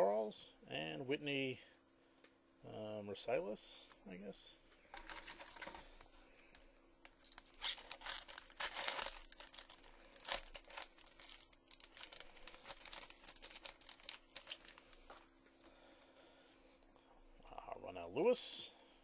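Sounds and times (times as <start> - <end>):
foil wrapper tearing and crinkling: 5.0 - 5.7, 6.5 - 15.2.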